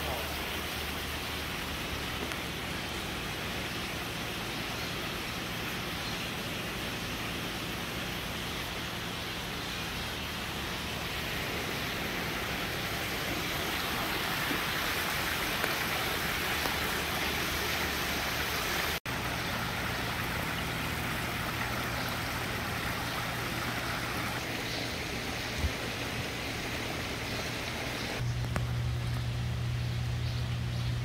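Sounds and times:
low steady hum: 0:00.0 - 0:31.0
water splashing over rocks: 0:10.9 - 0:24.5.

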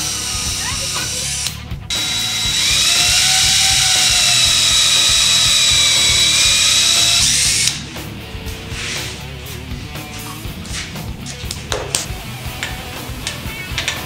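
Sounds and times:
cordless drill drilling: 0:00.0 - 0:07.8.

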